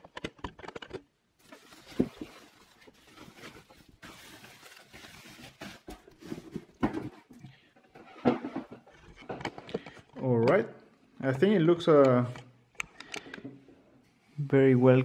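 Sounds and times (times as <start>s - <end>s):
plastic bag rustling and crinkling: 1.4s - 7.4s.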